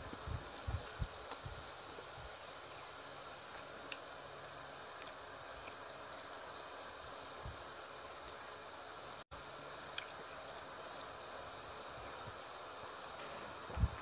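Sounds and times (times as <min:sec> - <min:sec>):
steady background hiss: 0:00.0 - 0:14.0
soft chewing: 0:03.0 - 0:06.9, 0:09.9 - 0:11.2.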